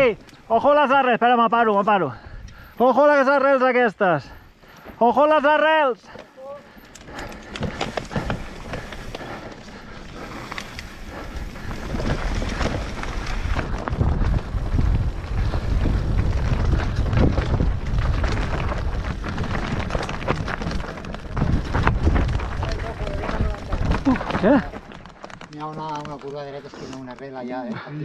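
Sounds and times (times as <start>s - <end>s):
bike rattling and knocking: 6.8s - 27.6s
wind buffeting microphone: 7.1s - 25.0s.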